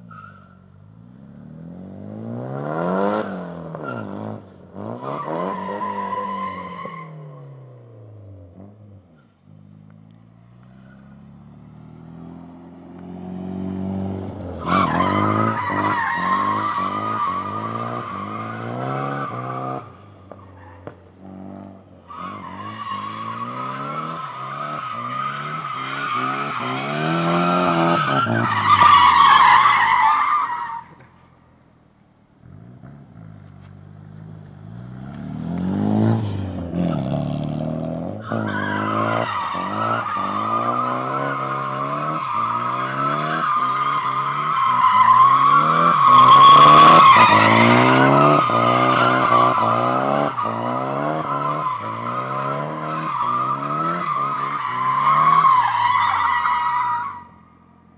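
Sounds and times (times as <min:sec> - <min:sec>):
tyre squeal: 0:00.1 - 0:00.7, 0:14.6 - 0:21.0, 0:22.1 - 0:31.2, 0:38.2 - 0:57.4
car engine revving: 0:32.4 - 0:57.9.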